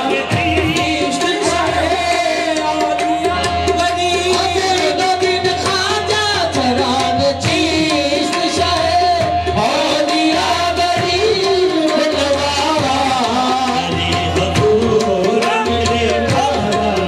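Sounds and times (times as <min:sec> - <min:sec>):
tabla drumming: 0:00.0 - 0:17.0.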